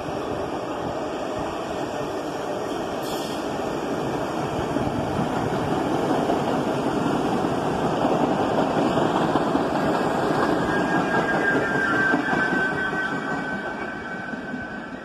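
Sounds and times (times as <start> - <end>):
subway train rumbling past: 0.0 - 15.0
faint high squeal: 10.4 - 15.0.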